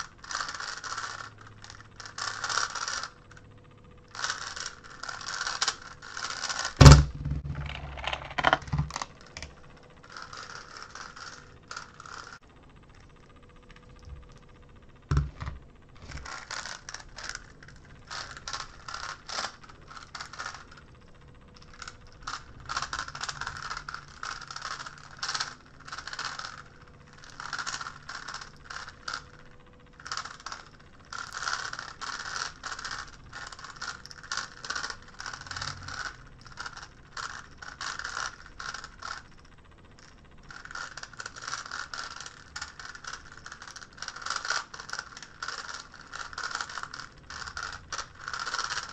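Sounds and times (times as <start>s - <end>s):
plastic puzzle clicking and clacking: 4.2s - 9.5s, 21.6s - 26.6s, 40.5s - 48.9s.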